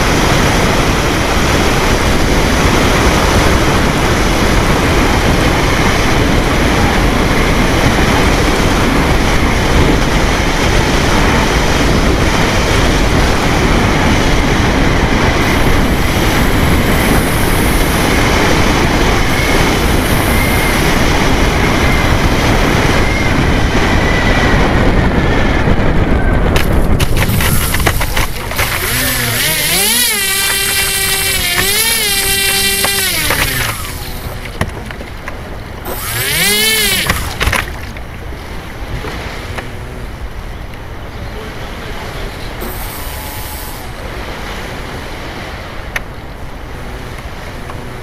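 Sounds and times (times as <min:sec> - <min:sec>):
propeller and wind rush: 0:00.0 - 0:48.0.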